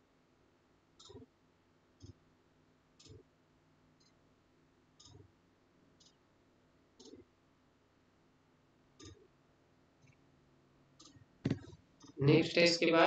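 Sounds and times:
faint regular clicking: 0.9s - 2.3s, 2.9s - 3.3s, 4.0s - 4.3s, 4.9s - 6.3s, 6.9s - 7.4s, 8.9s - 9.4s, 10.0s - 10.3s, 10.9s - 12.2s.

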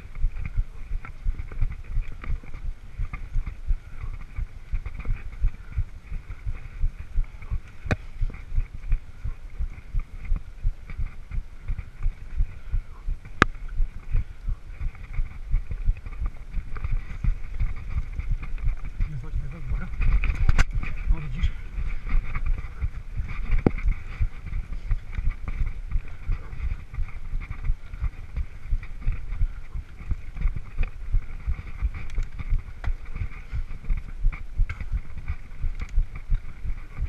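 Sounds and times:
tyre noise: 0.0s - 37.0s
sharp clicks: 19.8s - 20.9s, 31.8s - 33.0s, 35.7s - 36.2s.

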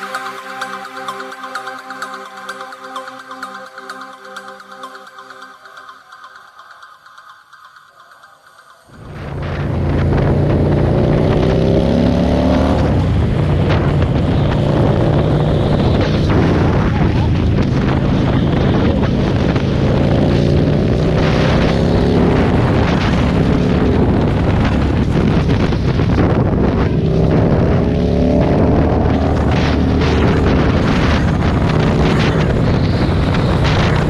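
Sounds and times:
motorcycle engine accelerating: 8.9s - 34.0s
wind buffeting microphone: 8.9s - 34.0s.

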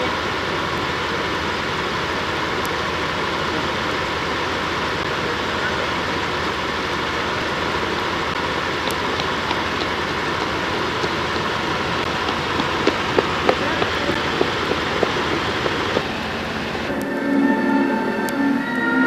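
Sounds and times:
vehicle rolling at low speed: 0.0s - 16.9s.

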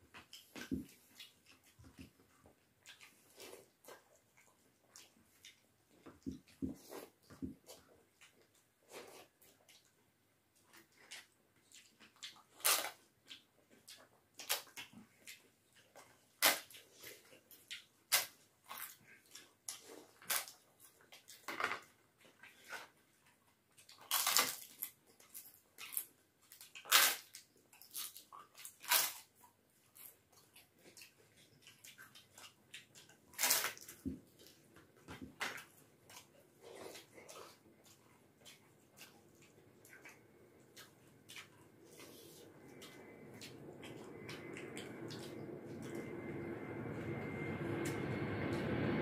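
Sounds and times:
chewing mouth noises: 0.1s - 10.0s, 10.6s - 21.5s, 27.7s - 46.3s
fried papad cracking and crunching: 11.8s - 13.4s, 23.8s - 29.3s, 33.0s - 34.0s.

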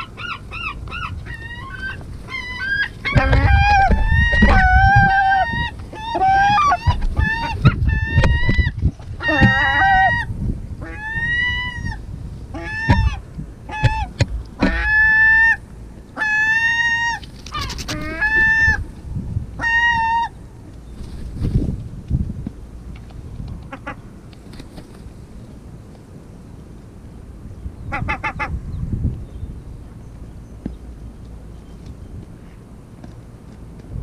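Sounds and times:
gulls calling: 0.0s - 21.1s, 23.6s - 24.9s.

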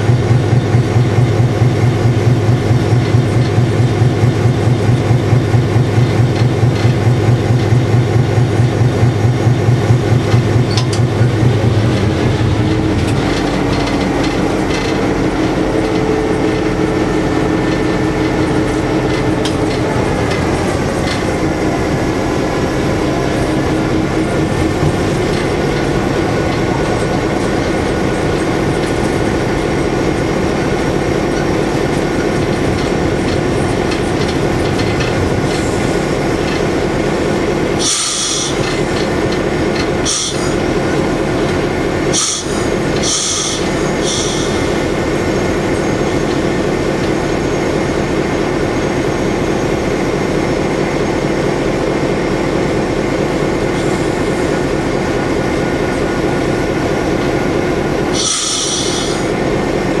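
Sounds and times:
diesel locomotive engine droning: 0.0s - 60.0s
short sharp hisses: 37.8s - 38.6s, 42.2s - 44.6s, 58.2s - 59.3s.

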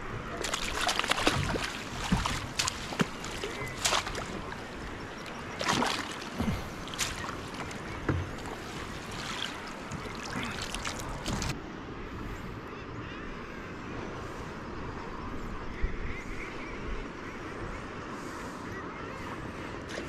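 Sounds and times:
water lapping against kayak: 0.0s - 12.5s
small splashes and knocks: 0.4s - 11.6s.

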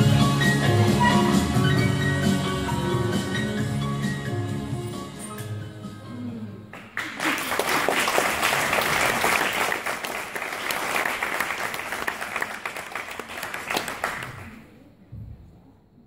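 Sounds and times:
music: 0.0s - 7.1s
audience applauding: 6.7s - 14.7s.

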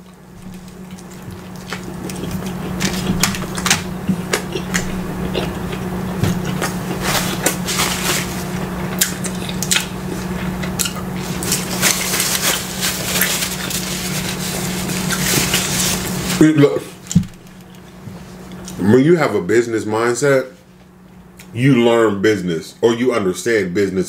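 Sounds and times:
man chewing a burger: 0.0s - 16.4s
steady low hum: 0.0s - 24.0s.

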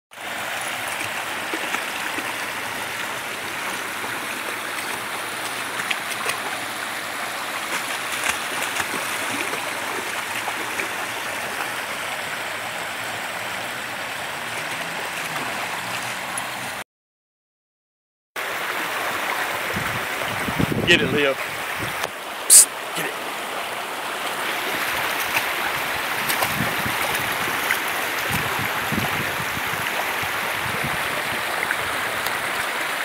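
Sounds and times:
creek running over stones: 0.1s - 16.8s, 18.4s - 33.0s
dog splashing in water: 4.6s - 11.8s, 14.4s - 16.7s, 24.6s - 29.1s.

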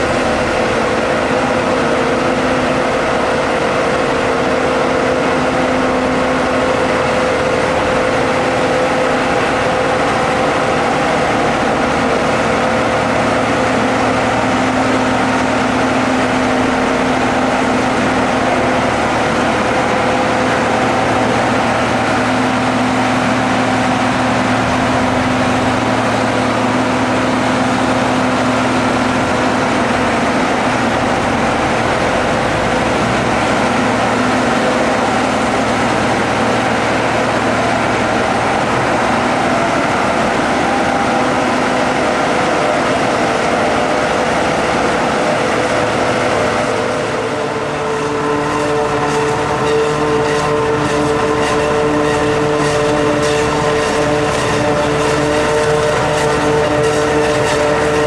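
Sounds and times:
tractor driving: 0.0s - 58.0s.

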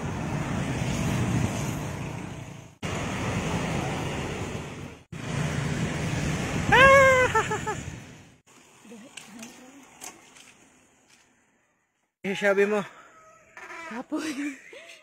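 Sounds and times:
road traffic noise: 0.0s - 11.6s.

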